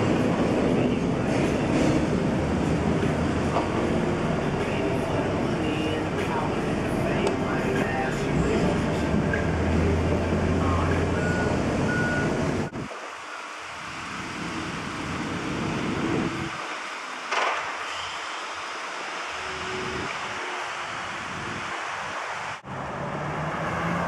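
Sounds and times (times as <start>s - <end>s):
vehicle engine rumbling: 0.0s - 18.4s
wind on microphone: 19.6s - 22.6s.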